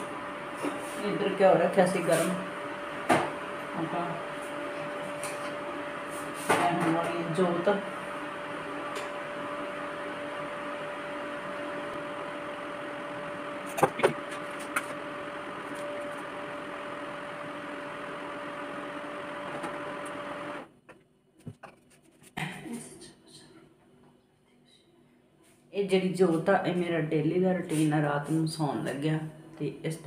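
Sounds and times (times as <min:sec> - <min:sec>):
appliance motor humming: 0:02.2 - 0:20.7.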